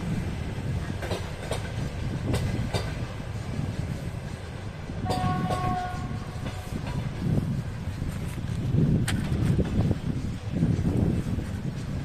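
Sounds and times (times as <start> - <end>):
train coaches rumbling past: 0.0 - 12.0
wheels clicking over rail joints: 0.6 - 12.0
locomotive horn: 5.0 - 6.5.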